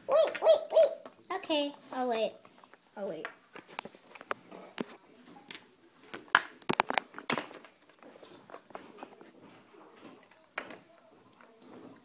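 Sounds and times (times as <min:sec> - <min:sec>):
plastic toys clicking and knocking: 0:05.5 - 0:09.2, 0:10.0 - 0:12.0.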